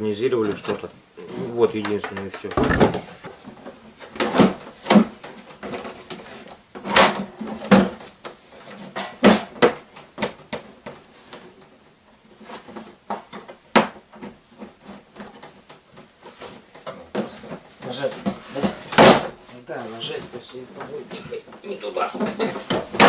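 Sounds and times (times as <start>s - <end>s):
plastic hood knocking on metal frame: 2.5s - 3.1s.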